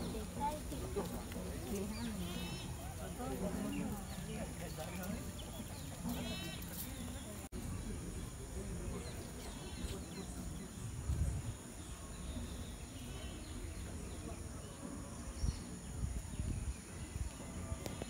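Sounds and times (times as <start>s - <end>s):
wind buffeting microphone: 10.1s - 18.0s.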